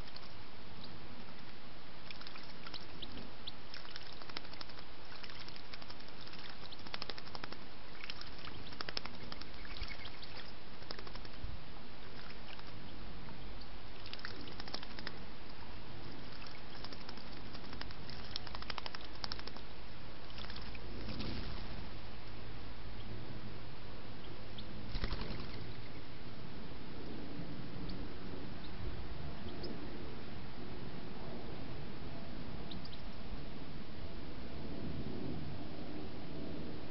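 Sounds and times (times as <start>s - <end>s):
water trickling in a pond: 0.0s - 11.4s, 12.0s - 12.9s, 13.6s - 21.8s
bird splashing in shallow water: 2.0s - 11.4s, 12.0s - 12.8s, 14.0s - 15.2s, 16.1s - 19.6s, 20.3s - 21.9s.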